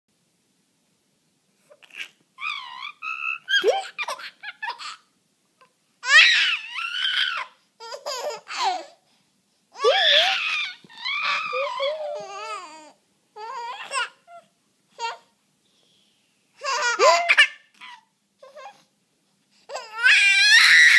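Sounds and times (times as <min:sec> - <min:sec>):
baby laughing: 0:01.7 - 0:05.1, 0:06.0 - 0:09.0, 0:09.8 - 0:14.4, 0:16.6 - 0:18.8.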